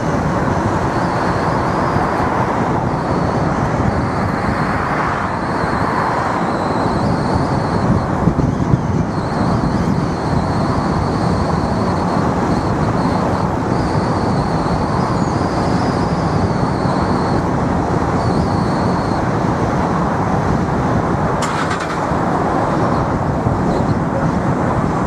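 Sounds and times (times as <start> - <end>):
car road and engine noise: 0.0 - 25.0.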